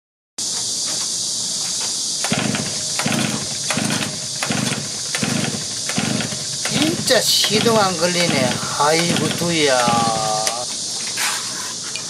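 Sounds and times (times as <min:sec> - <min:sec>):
high insect drone: 0:00.4 - 0:12.0
brush cutter engine cranking: 0:02.2 - 0:10.7.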